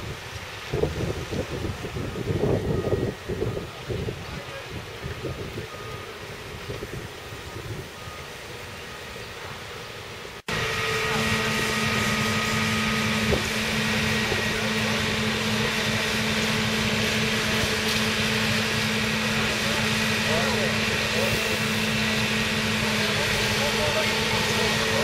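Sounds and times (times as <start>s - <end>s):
wind on microphone: 0.0s - 5.8s, 13.1s - 14.5s
fire engine idling hum: 0.0s - 25.0s.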